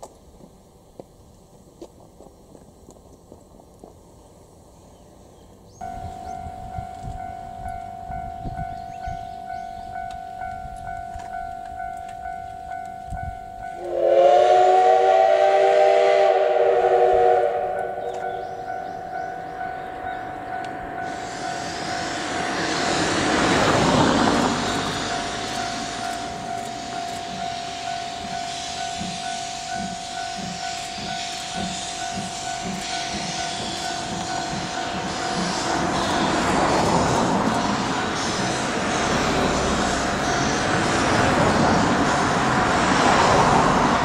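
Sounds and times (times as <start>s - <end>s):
steam whistle blast: 13.8s - 18.6s
steam hissing: 13.8s - 19.6s, 20.3s - 44.0s
locomotive exhaust chuffing: 13.8s - 44.0s.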